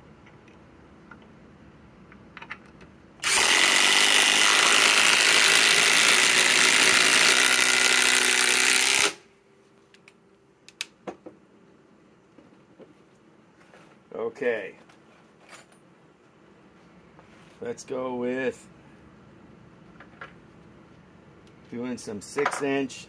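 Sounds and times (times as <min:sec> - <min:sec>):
impact drivers hammering screws: 0:03.2 - 0:09.2.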